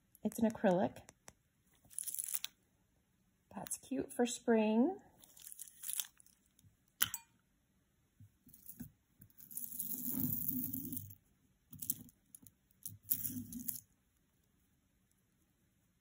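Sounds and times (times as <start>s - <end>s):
jewelry rustling on cloth: 1.7s - 2.5s, 5.2s - 6.6s, 8.4s - 13.9s
beads and bracelets shuffling: 1.8s - 2.5s, 5.2s - 6.4s, 9.4s - 12.2s, 12.8s - 13.9s.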